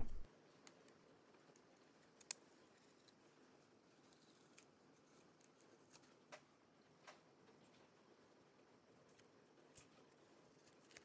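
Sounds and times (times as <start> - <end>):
faint plastic clicks: 0.0 - 3.2.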